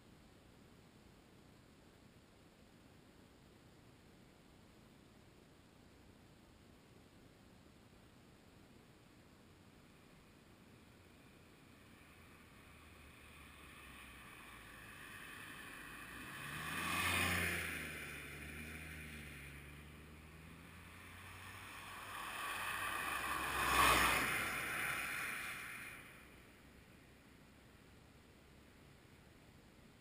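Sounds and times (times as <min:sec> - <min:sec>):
vehicles passing by: 0:09.8 - 0:27.8.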